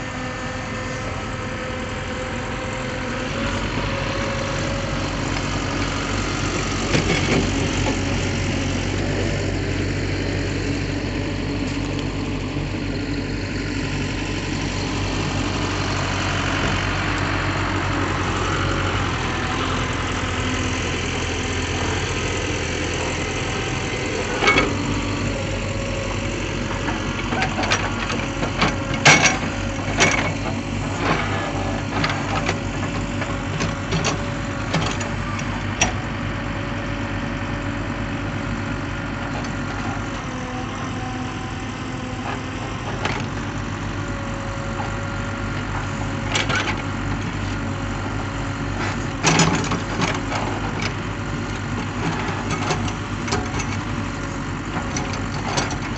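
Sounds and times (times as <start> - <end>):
diesel engine running: 0.0 - 55.9
backhoe bucket knocks and clanks: 27.3 - 30.4.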